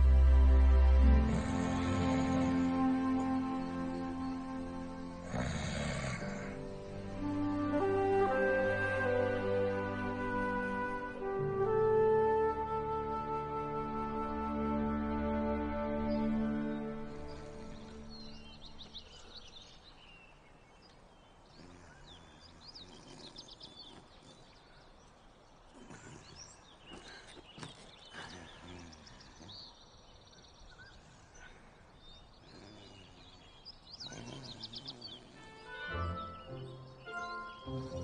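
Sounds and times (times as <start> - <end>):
small birds chirping: 0.0 - 11.2, 15.0 - 38.0.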